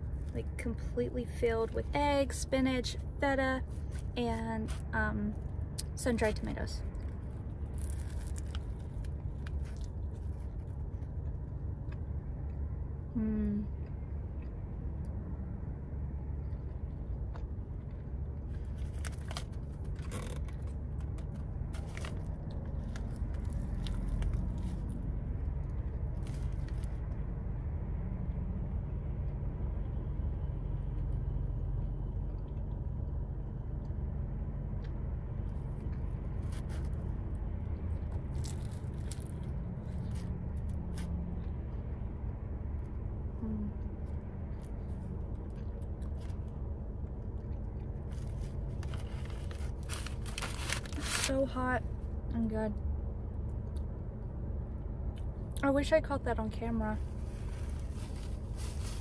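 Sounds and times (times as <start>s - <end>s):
low hum in car cabin: 0.0s - 59.0s
person chewing crunchy wrap: 7.0s - 12.6s, 16.3s - 27.2s, 34.8s - 41.6s, 43.8s - 51.3s
paper sleeve rustling: 48.2s - 51.4s, 57.2s - 59.0s.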